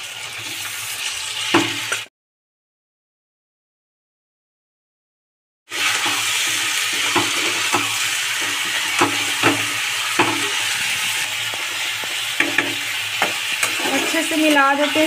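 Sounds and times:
chicken sizzling in hot fat: 0.0s - 2.1s, 5.7s - 15.0s
steel spatula scraping pan: 5.7s - 15.0s.

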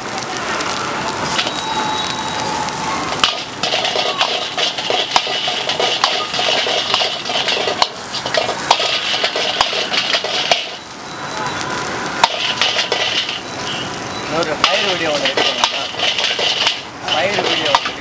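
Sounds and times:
steady frying hiss: 0.0s - 18.0s
metal ladle scraping a wok: 3.2s - 10.8s, 12.2s - 13.5s, 14.7s - 18.0s.

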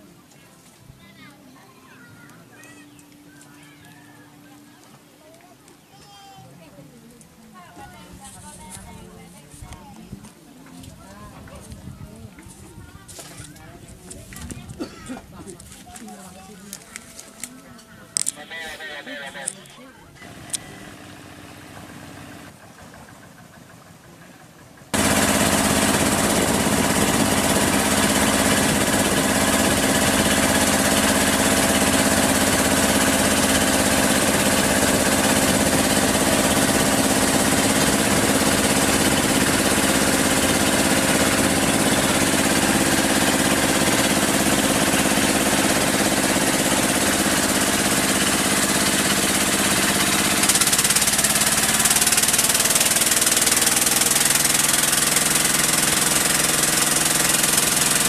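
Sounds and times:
boat engine running: 20.2s - 58.0s.

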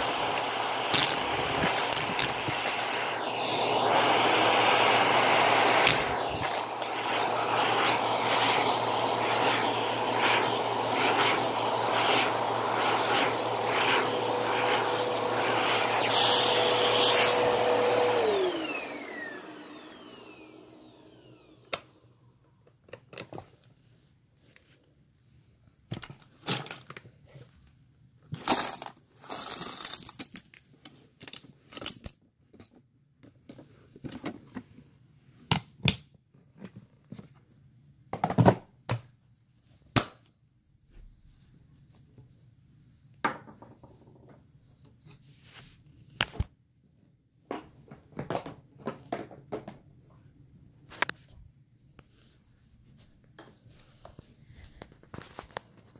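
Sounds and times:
motor winding down whine: 0.0s - 22.1s
vacuum cleaner running: 0.0s - 22.6s
coins rattling in plastic bin: 28.4s - 30.8s.

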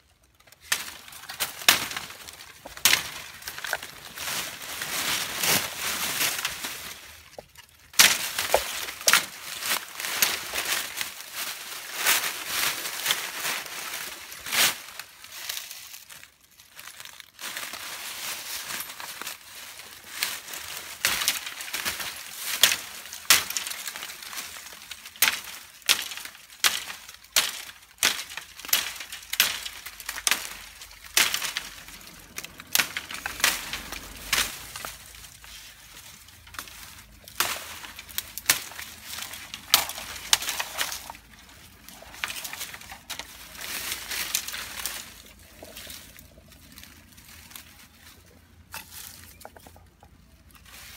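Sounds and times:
dry leaves crunching underfoot: 0.0s - 50.9s
dry twigs snapping: 0.1s - 50.9s.

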